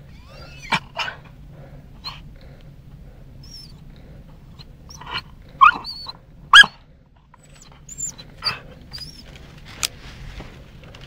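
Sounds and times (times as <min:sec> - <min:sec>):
dog barking sharply: 0:05.0 - 0:05.9, 0:06.5 - 0:06.8.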